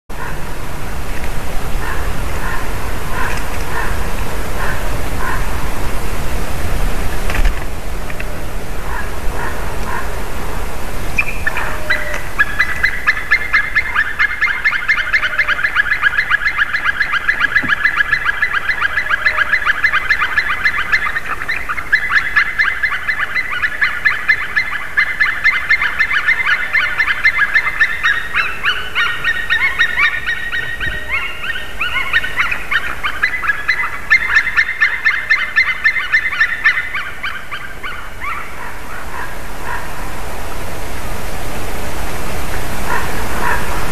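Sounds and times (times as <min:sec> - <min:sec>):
woodpeckers whistling: 0:01.7 - 0:05.6, 0:11.1 - 0:39.8.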